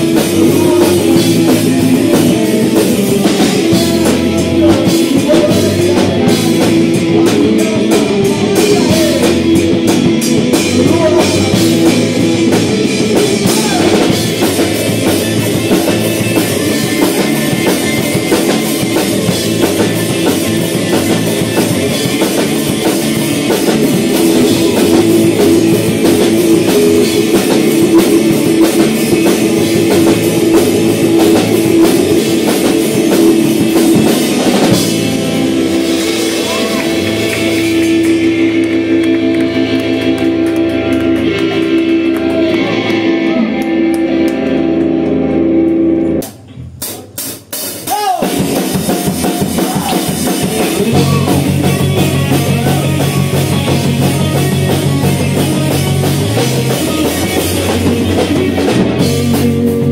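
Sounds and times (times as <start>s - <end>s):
electric guitars: 0.0s - 46.9s, 47.6s - 59.9s
bass guitar: 0.0s - 59.9s
drum kit: 0.0s - 59.9s.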